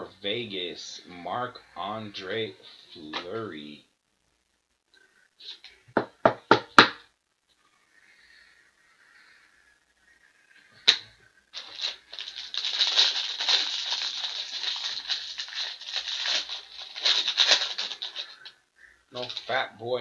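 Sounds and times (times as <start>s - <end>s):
foil wrapper crackling as torn open: 11.6s - 18.6s, 19.2s - 19.6s.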